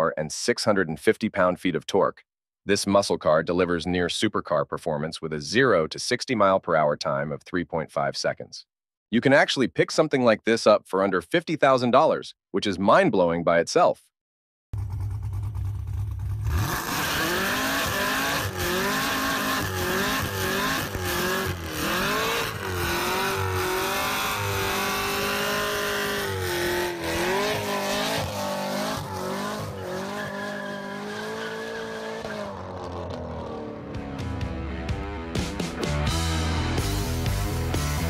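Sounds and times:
car engine revving: 14.8s - 38.0s
tyres squealing: 27.1s - 32.6s.

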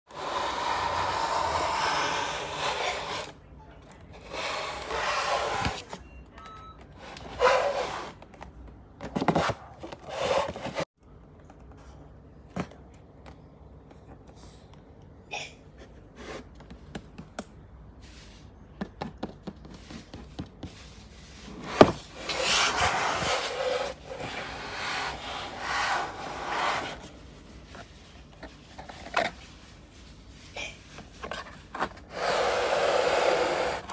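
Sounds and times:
hands rubbing cardboard box: 0.1s - 3.4s, 19.6s - 33.9s.

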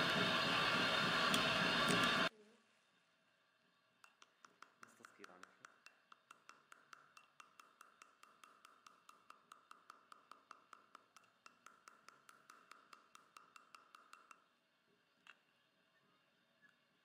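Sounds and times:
mallet tapping on metal tool: 4.0s - 14.4s.

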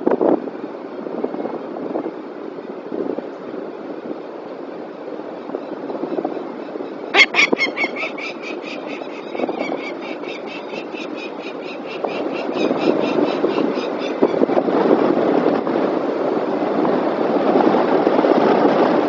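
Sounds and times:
falcon calling harsh notes: 7.1s - 14.2s.

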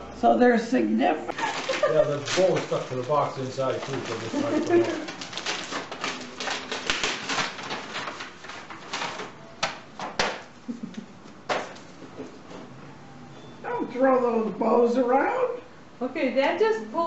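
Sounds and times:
wrapping paper tearing and crumpling: 1.3s - 9.4s.

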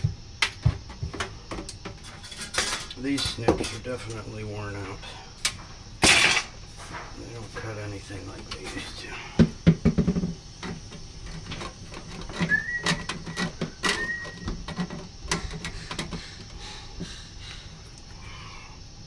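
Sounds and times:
metal vent pipe knocking and scraping: 0.0s - 4.3s, 8.2s - 17.6s
metal rubbing squeak: 12.0s - 16.4s.

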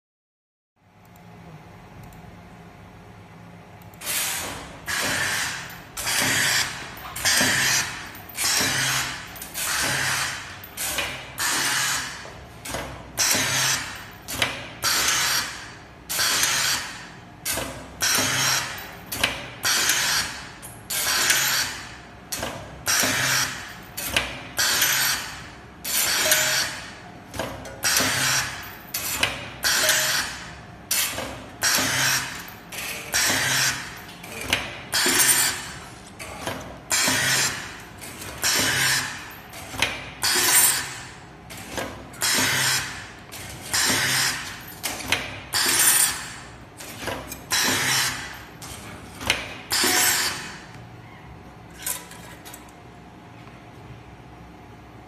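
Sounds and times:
cutting machine strokes with hiss: 4.0s - 12.2s.

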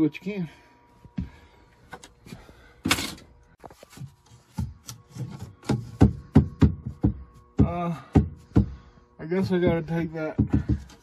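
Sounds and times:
plywood knocking against wood: 5.6s - 8.8s, 9.7s - 11.0s.

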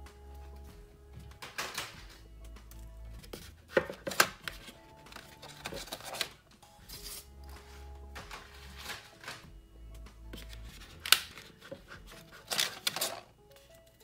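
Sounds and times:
soft background music: 0.0s - 14.0s
pencils rattling in plastic tray: 3.2s - 6.4s, 8.2s - 9.5s, 10.4s - 13.3s.

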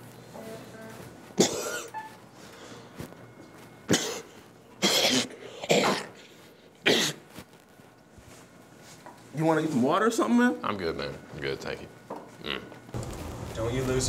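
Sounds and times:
man coughing: 1.4s - 2.0s, 3.9s - 6.2s, 6.8s - 7.2s.

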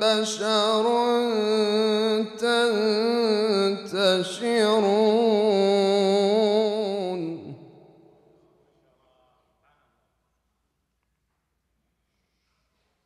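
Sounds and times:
man reciting in melodic chant: 0.0s - 8.0s.

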